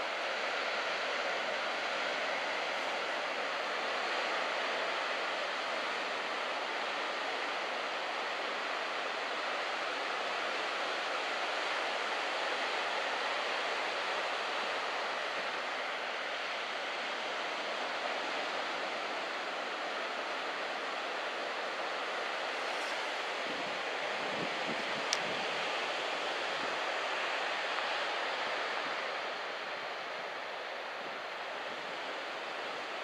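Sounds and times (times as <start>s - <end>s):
surf washing in: 14.1s - 33.0s.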